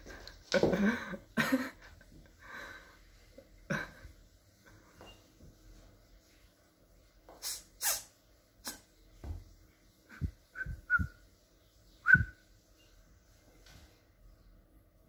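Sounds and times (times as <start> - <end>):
cat hissing: 7.4 - 8.9.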